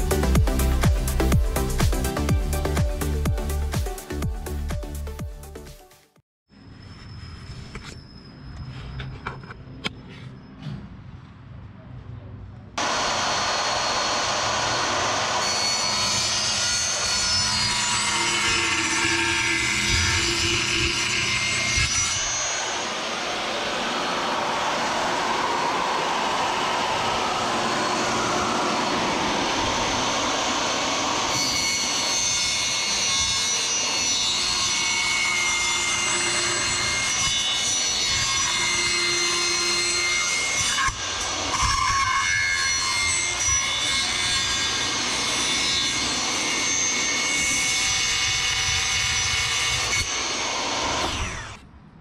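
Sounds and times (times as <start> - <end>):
table saw cutting planks: 12.8 - 51.6.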